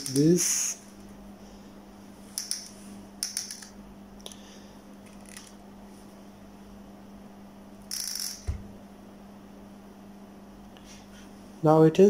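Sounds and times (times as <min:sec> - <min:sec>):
steady low hum: 0:00.0 - 0:12.0
crimp tool ratchet clicking: 0:02.4 - 0:03.7, 0:07.9 - 0:08.5.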